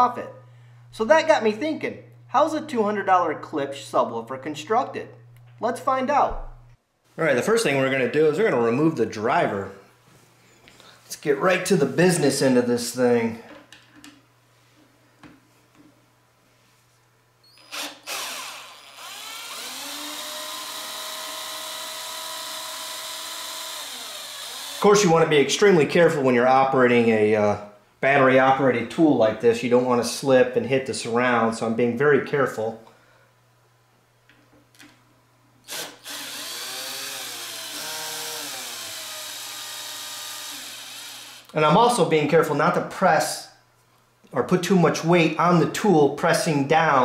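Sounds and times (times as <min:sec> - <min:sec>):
cordless drill motor whine: 0:17.5 - 0:24.8, 0:35.7 - 0:41.5.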